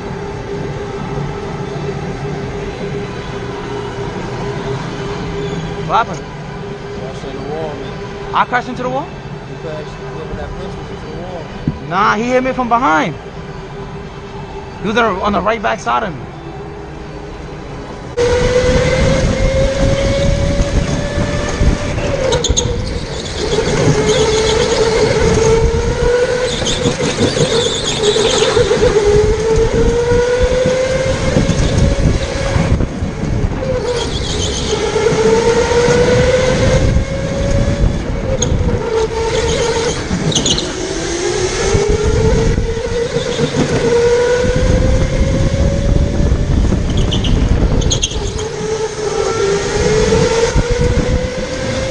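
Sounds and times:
electric go-kart motor whining: 0.0 - 11.8, 16.4 - 51.9
heavy kart rumble: 0.0 - 51.9
wind on camera: 18.1 - 51.9
tyre squeals: 21.8 - 32.6, 33.6 - 36.6, 38.3 - 44.5, 46.8 - 50.4.

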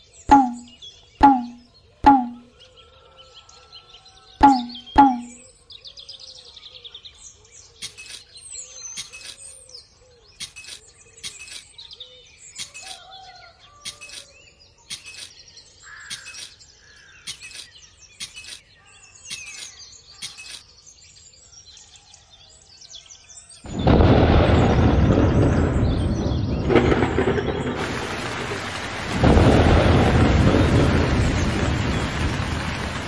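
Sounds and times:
birds chirping and whistling: 4.4 - 6.4, 7.5 - 21.9
sharp click: 10.4 - 11.7, 13.9 - 14.3, 14.9 - 15.3, 16.1 - 16.6, 17.3 - 18.6, 19.3 - 20.6.

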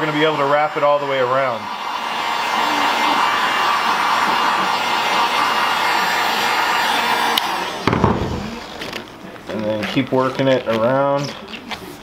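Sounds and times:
heat gun blowing hot air: 0.0 - 9.0.

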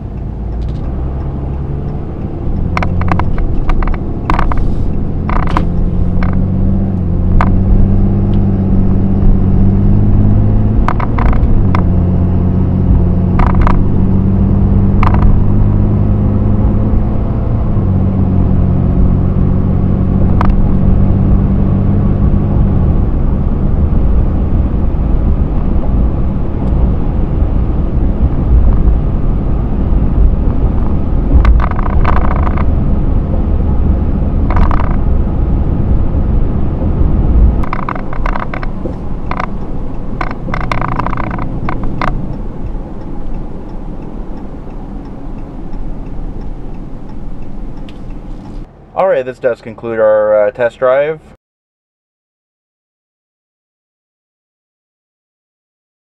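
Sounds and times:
pickup engine accelerating: 0.0 - 51.0
steady road noise: 0.0 - 51.4
sharp clicks: 0.2 - 7.7, 10.8 - 11.9, 13.4 - 13.9, 15.0 - 15.4, 31.3 - 32.8, 34.5 - 35.0, 37.6 - 48.7.

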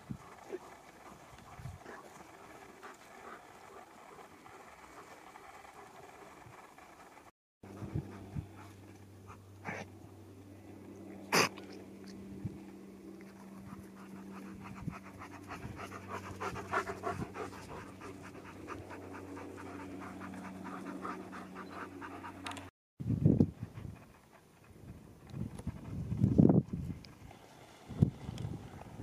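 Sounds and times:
wind noise on microphone: 0.0 - 0.6, 1.2 - 2.0, 7.7 - 8.7, 14.5 - 17.9, 23.0 - 29.0
dog panting: 0.2 - 9.8, 13.3 - 22.7, 23.6 - 26.2.

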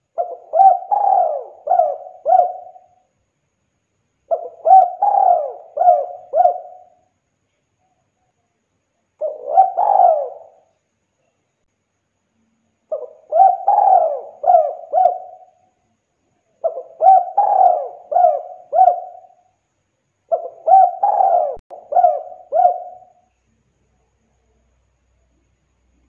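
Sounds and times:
dove cooing: 0.0 - 3.0, 4.3 - 7.0, 9.2 - 10.7, 12.9 - 15.6, 16.6 - 19.4, 20.3 - 23.2.

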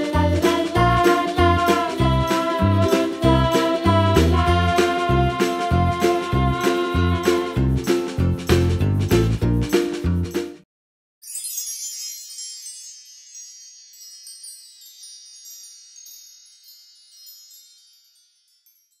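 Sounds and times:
background music: 0.0 - 10.6
wind chimes tinkling: 11.2 - 19.0.

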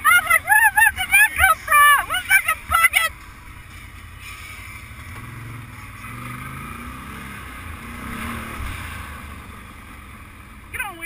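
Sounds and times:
quad engine at low revs: 4.6 - 11.0.

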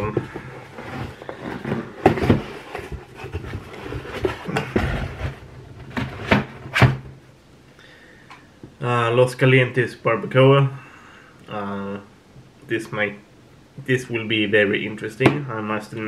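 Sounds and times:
hands rummaging in cardboard box: 0.0 - 6.5.

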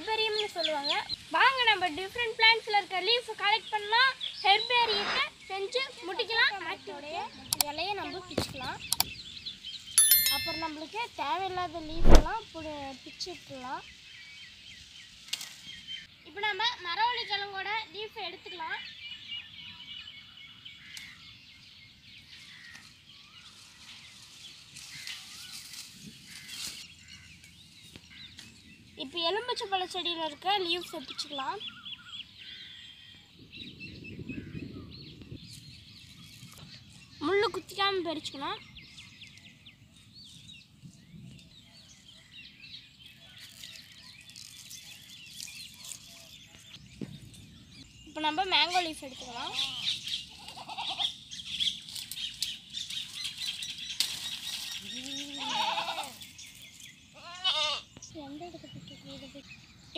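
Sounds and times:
small birds chirping: 0.0 - 59.9
bird chirps: 8.6 - 11.2
leaves rustling: 10.2 - 12.4, 22.3 - 28.6, 35.4 - 37.6, 43.1 - 47.6, 48.2 - 57.3
sharp click: 11.9 - 12.3.

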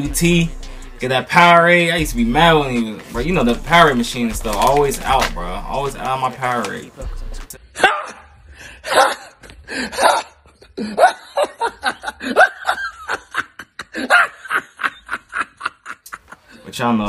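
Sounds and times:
man laughing hard: 7.8 - 16.7.

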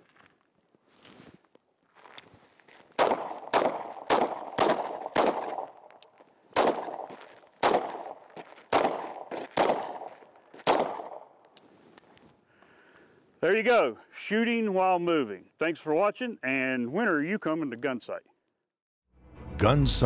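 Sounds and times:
pistol shots with echo: 3.0 - 5.9, 6.6 - 11.3.

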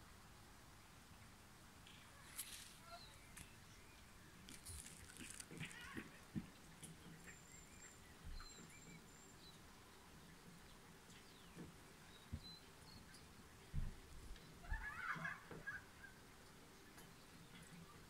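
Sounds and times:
small birds chirping: 0.7 - 18.0.

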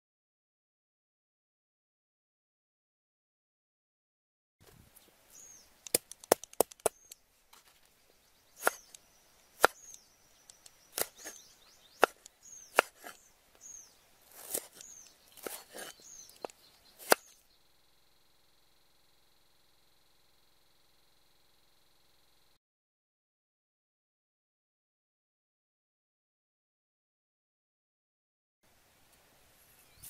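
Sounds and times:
knife chopping on wooden board: 8.6 - 9.0, 9.6 - 10.0, 10.9 - 13.3, 14.3 - 17.4.

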